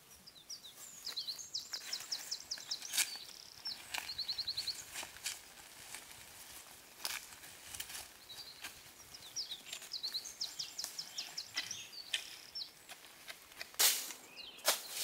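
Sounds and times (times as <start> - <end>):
footsteps on leaves and twigs: 0.7 - 15.0
songbird singing high notes: 14.2 - 15.0.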